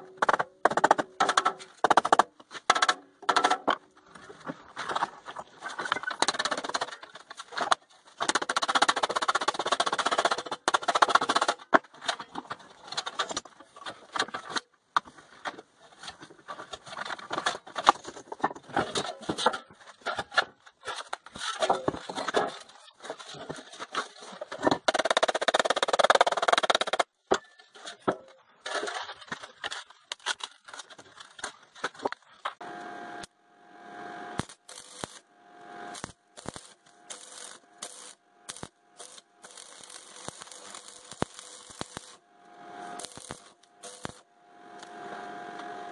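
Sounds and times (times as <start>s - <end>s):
arc welder sizzling: 32.6s - 45.9s.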